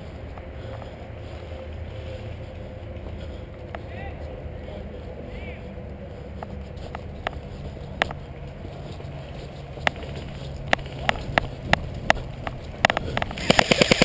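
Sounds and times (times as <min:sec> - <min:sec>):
airsoft gun shots: 0:13.4 - 0:14.0.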